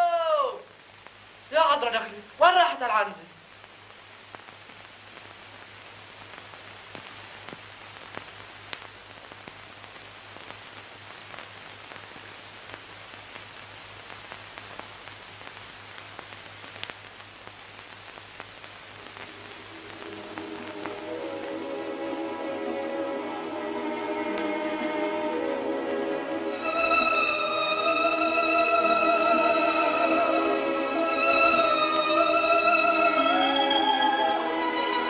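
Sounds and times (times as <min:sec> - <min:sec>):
film soundtrack hiss and crackles: 0:00.0 - 0:35.0
music: 0:19.0 - 0:35.0.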